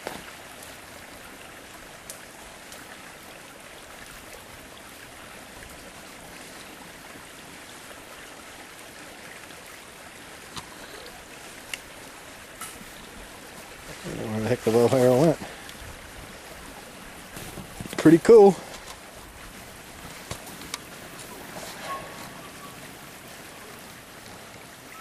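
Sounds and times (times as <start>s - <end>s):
creek rushing: 0.0s - 25.0s.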